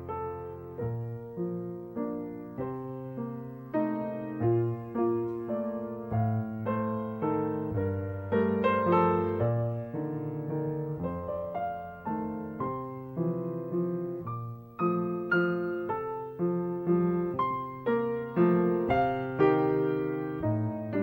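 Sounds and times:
piano music: 0.0 - 21.0.

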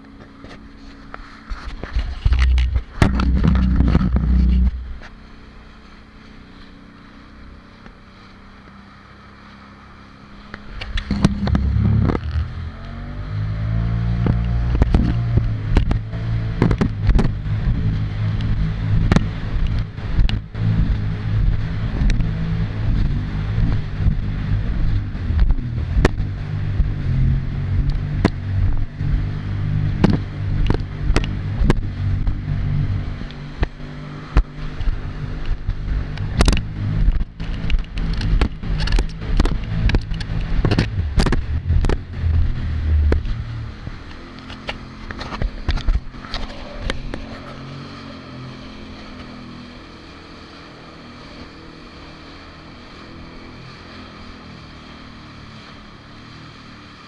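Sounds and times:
jet ski engine: 0.0 - 57.0
hull slapping over waves: 0.8 - 12.7, 13.6 - 56.8.

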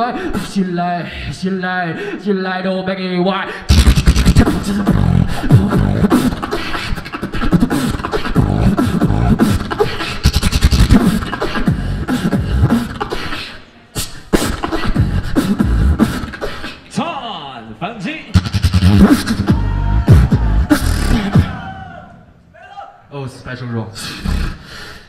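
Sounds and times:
beatboxing through microphone: 3.6 - 17.0, 18.3 - 21.7, 24.0 - 25.0
deep bass tones: 3.7 - 6.2, 18.4 - 21.6.

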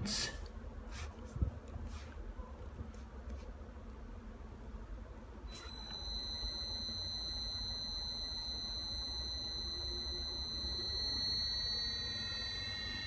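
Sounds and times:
faint low hum: 0.0 - 13.0
electric motor whine: 5.5 - 13.0.

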